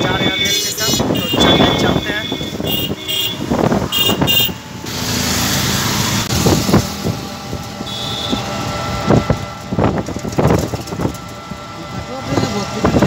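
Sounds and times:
road and wind noise: 0.0s - 13.0s
high-pitched horn beeps: 0.1s - 4.6s.

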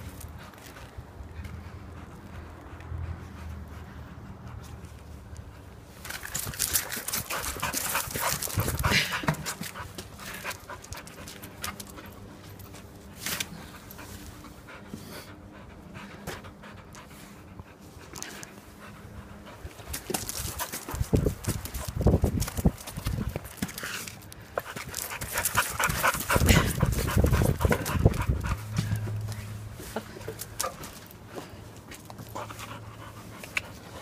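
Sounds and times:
puppy panting: 0.2s - 5.8s, 6.6s - 34.0s
clicks and scuffs: 4.6s - 15.0s, 19.3s - 34.0s.

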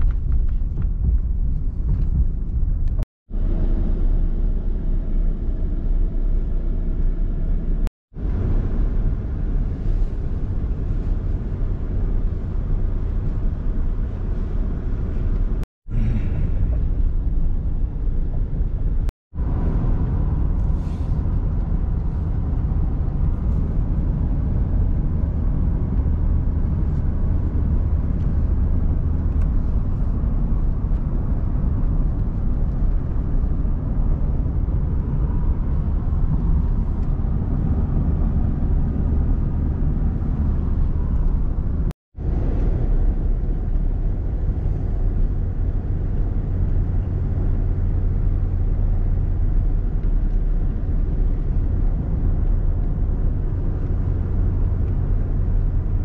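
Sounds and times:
car cabin road rumble: 0.0s - 56.0s.

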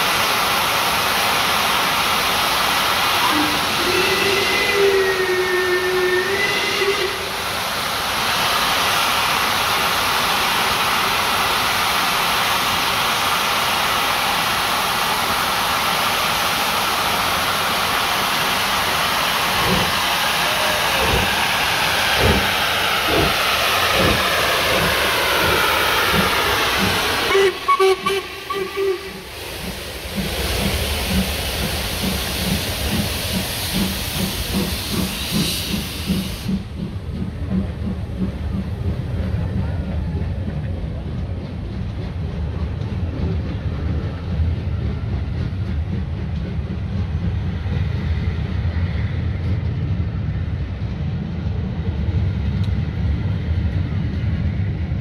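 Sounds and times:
steam hissing: 0.0s - 40.6s
steam locomotive pounding beats: 16.8s - 55.0s.

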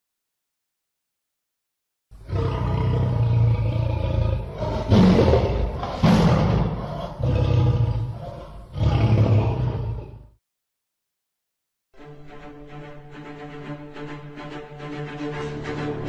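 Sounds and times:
lion roaring: 2.2s - 10.4s.

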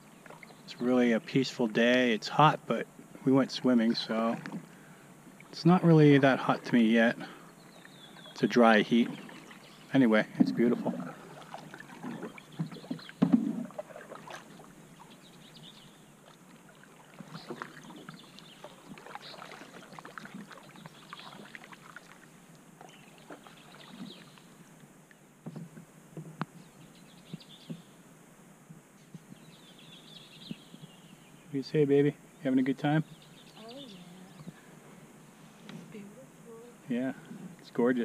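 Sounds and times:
paddles pulling through water: 0.0s - 28.0s
water splashes and drips: 7.8s - 15.2s, 16.2s - 24.6s.

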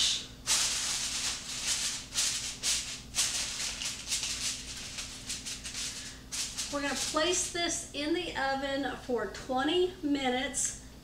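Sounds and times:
aluminum foil crinkling: 0.5s - 7.6s.

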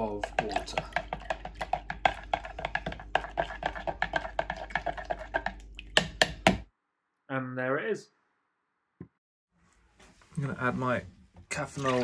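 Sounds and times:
spoon rattling in plastic jug: 0.0s - 5.6s.

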